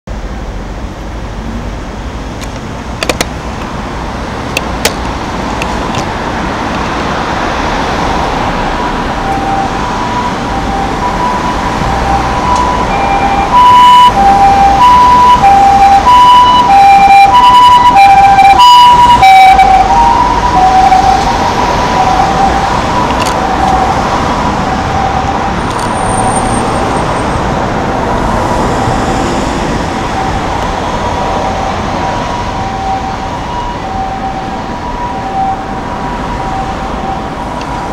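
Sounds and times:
road traffic: 0.1s - 37.9s
ambulance siren two-tone: 8.0s - 27.3s, 28.7s - 37.9s.

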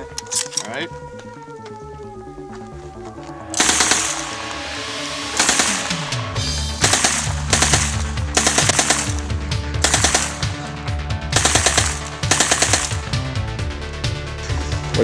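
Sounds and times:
submachine gun firing bursts: 3.6s - 4.4s, 5.4s - 6.1s, 6.8s - 10.6s, 11.4s - 13.2s.

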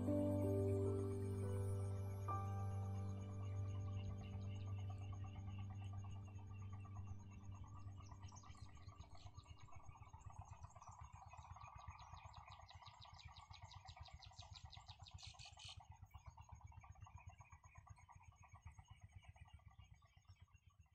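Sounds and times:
soft background music: 0.0s - 9.2s.

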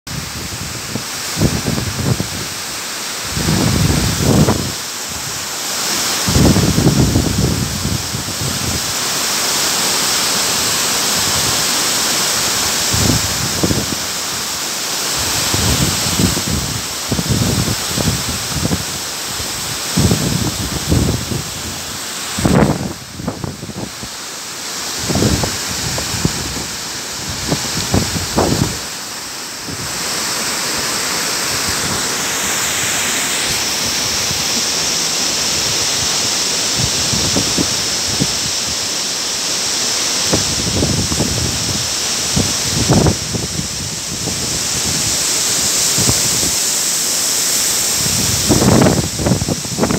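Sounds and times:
waterfall splashing on rock: 0.1s - 49.9s
wind buffeting microphone: 6.3s - 8.9s, 12.9s - 14.0s, 15.2s - 21.8s, 22.4s - 24.1s, 25.0s - 28.9s, 36.8s - 38.6s, 40.3s - 45.2s, 48.0s - 49.9s.

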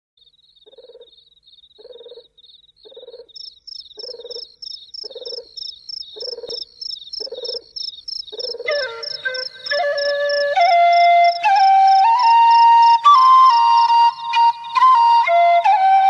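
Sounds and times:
higher-pitched insect: 0.2s - 13.0s
high insect chirping: 0.2s - 13.3s
frog croaking: 0.5s - 10.4s.

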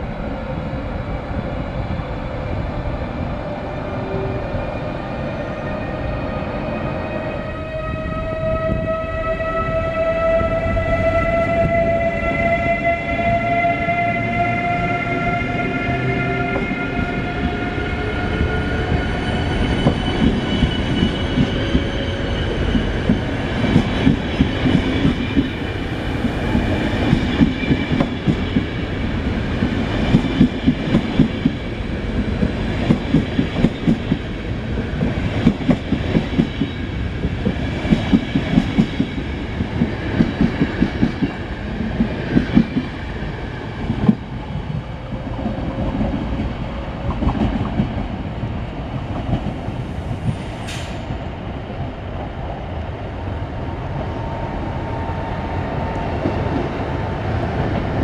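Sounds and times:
electric locomotive whining: 0.0s - 58.0s
train wheels clickety-clack: 17.4s - 25.6s, 26.2s - 34.3s, 35.0s - 43.0s, 43.8s - 48.2s, 49.0s - 51.2s.

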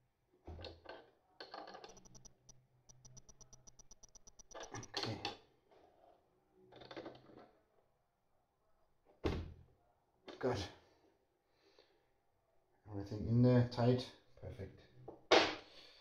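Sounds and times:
hand ratchet clicking: 1.9s - 4.9s.

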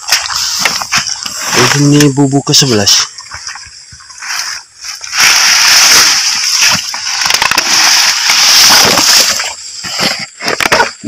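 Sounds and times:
grass rustling: 0.0s - 11.0s
muddy water sloshing: 2.6s - 10.7s.

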